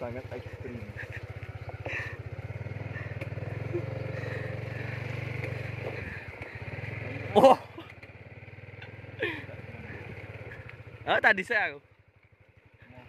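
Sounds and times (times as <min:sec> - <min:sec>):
small motorcycle engine running: 0:00.0 - 0:13.0.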